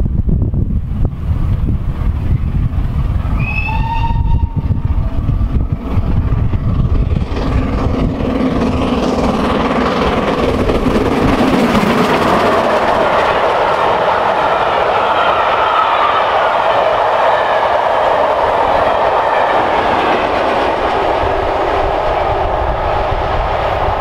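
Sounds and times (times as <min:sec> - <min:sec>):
steam locomotive passing: 0:00.0 - 0:24.0
wind buffeting microphone: 0:00.0 - 0:24.0
steam whistle: 0:03.4 - 0:04.8.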